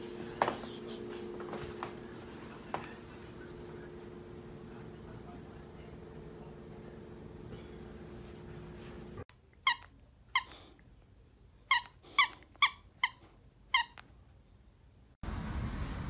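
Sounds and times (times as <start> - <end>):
plush toy squeaker squeaking: 9.7 - 10.5, 11.7 - 13.2, 13.8 - 14.0.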